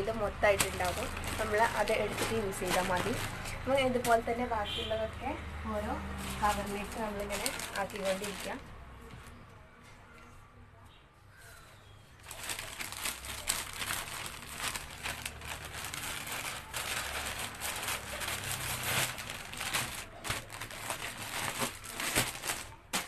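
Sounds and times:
plastic bag crinkling: 0:00.0 - 0:04.3, 0:06.1 - 0:08.7, 0:12.2 - 0:23.0.

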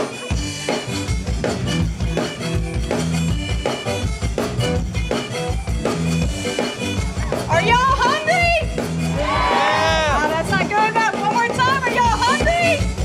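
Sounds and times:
piano accordion: 0:00.0 - 0:07.4
bass: 0:00.0 - 0:13.0
drum kit beat: 0:00.0 - 0:13.0.

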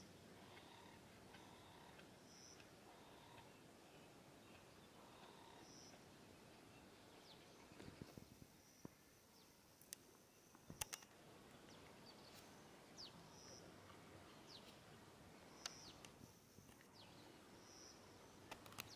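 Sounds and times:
sharp clicks: 0:10.6 - 0:11.2, 0:18.4 - 0:18.9.

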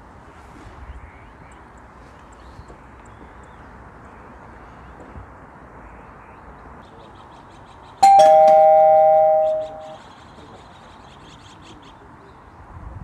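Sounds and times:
two-note ding-dong chime: 0:08.0 - 0:10.0.

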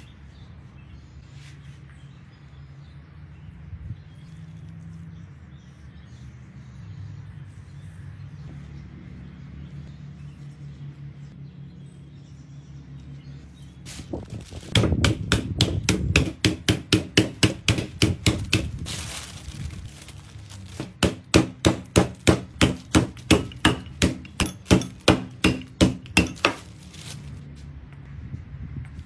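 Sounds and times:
rolling pin pounding meat: 0:14.6 - 0:18.8, 0:20.7 - 0:26.6.

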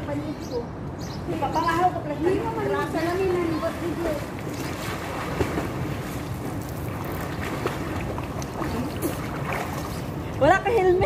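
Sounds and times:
pool water lapping into gutter: 0:01.7 - 0:11.0
swimmers splashing: 0:02.2 - 0:10.9.

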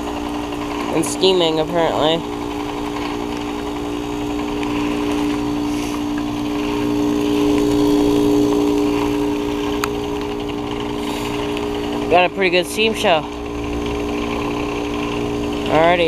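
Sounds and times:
heat pump mechanical hum: 0:00.0 - 0:16.0.

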